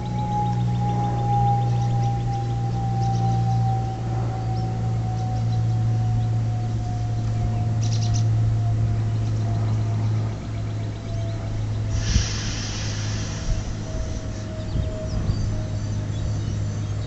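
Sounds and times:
bird chirps: 0:00.0 - 0:17.0
faint whine: 0:00.0 - 0:17.0
train rumbling: 0:00.0 - 0:17.0
hiss: 0:11.9 - 0:14.4.

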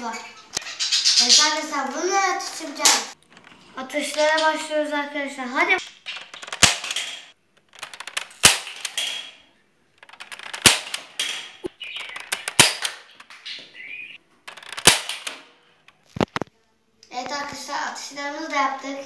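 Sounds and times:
toy dart blaster pops: 0:06.6 - 0:07.3, 0:12.4 - 0:13.0, 0:14.8 - 0:15.4.

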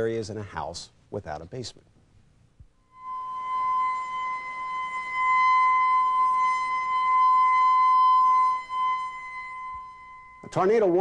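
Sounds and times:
warning siren steady tone: 0:02.8 - 0:11.0.

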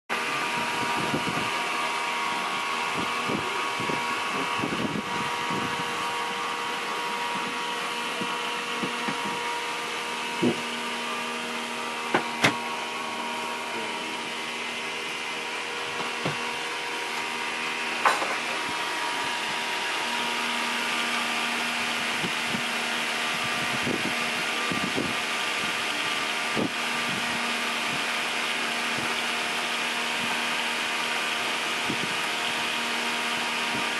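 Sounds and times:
machinery droning: 0:00.1 - 0:33.9.

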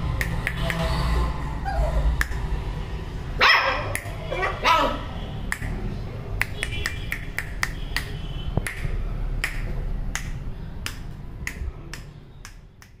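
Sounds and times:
fingers snapping: 0:00.2 - 0:00.8, 0:03.9 - 0:04.2, 0:05.5 - 0:05.8, 0:06.4 - 0:13.0.

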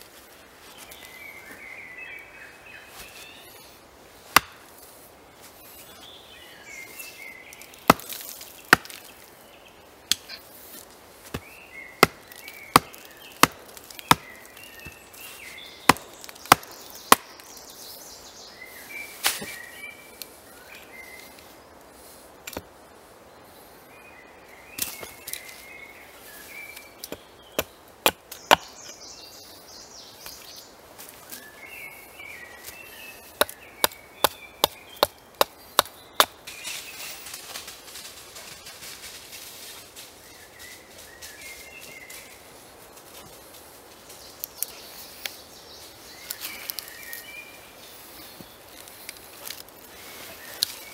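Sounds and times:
hatchet chopping wood: 0:04.3 - 0:04.6, 0:07.8 - 0:09.0, 0:11.3 - 0:15.0, 0:15.9 - 0:17.4, 0:27.1 - 0:28.8, 0:33.4 - 0:36.4.

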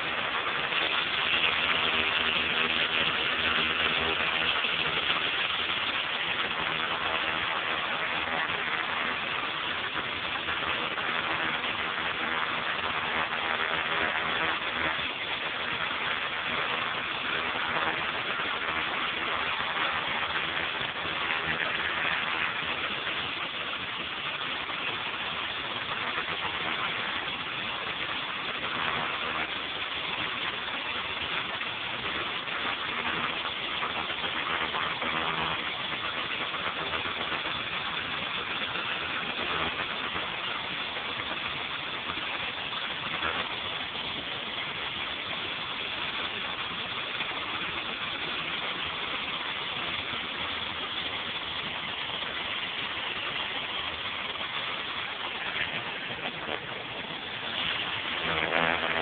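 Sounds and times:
pressure washer engine running: 0:00.0 - 0:34.5, 0:46.6 - 0:59.0
high-pressure water jet hissing: 0:00.0 - 0:59.0.

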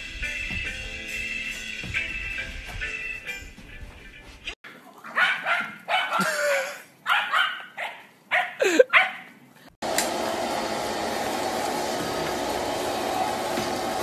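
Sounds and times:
dogs barking and yipping: 0:05.0 - 0:09.4.

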